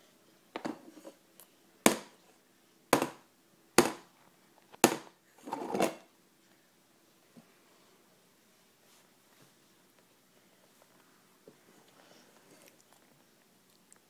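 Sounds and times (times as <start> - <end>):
baby banging on plastic tray: 3.8 - 4.0.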